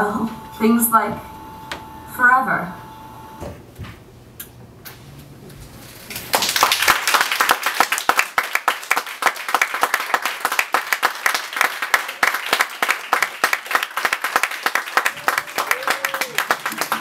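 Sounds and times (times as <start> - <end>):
audience applauding: 6.1 - 17.0.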